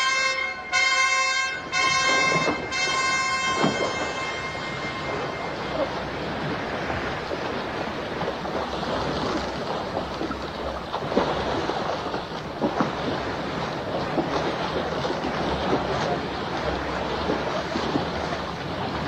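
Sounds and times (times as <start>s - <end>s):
open sea wash: 0.0s - 19.0s
swimmers splashing in water: 0.0s - 19.0s.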